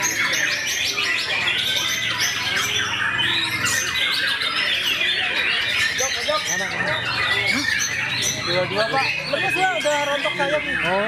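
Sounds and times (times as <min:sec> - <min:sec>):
songbirds chorus: 0:00.0 - 0:11.0.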